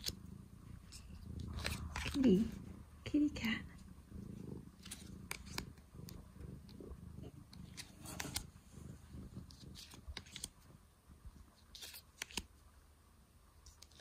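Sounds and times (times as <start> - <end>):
cat purring: 0.0 - 12.3
cards clicking and rustling: 1.5 - 2.3, 4.8 - 5.7, 7.5 - 8.5, 9.5 - 10.6, 11.6 - 12.5, 13.7 - 14.0.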